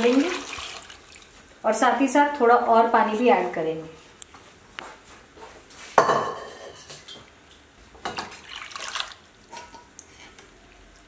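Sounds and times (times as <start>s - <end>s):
water pouring into a pan: 0.0s - 1.3s, 8.2s - 9.3s.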